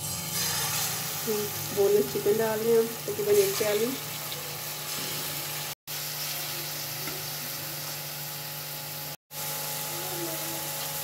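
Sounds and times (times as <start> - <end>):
chicken frying in oil: 0.0 - 11.0.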